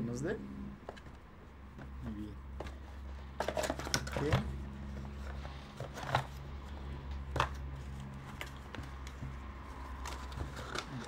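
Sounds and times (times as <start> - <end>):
steady low hum: 0.0 - 11.0
cardboard box rustling: 2.6 - 6.5.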